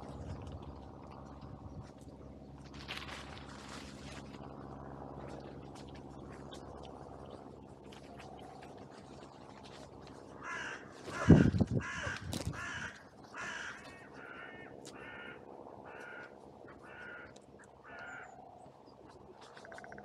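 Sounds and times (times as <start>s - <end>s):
crow cawing: 10.4s - 18.4s.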